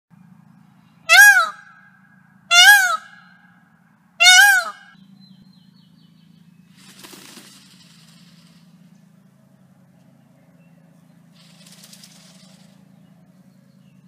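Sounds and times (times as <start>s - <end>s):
peacock wailing calls: 1.1s - 3.6s, 4.2s - 5.0s
tail feathers rattling: 6.7s - 8.8s, 11.3s - 12.9s.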